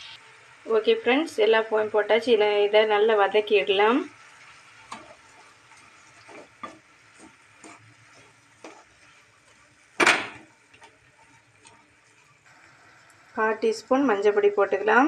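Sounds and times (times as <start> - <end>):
faint frying sizzle: 0.0 - 15.0
wooden spatula scraping a pan: 4.5 - 12.4.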